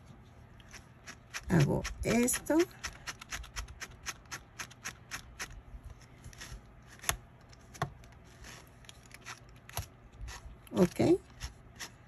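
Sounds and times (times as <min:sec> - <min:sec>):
brush raking through yarn: 0:00.0 - 0:06.6.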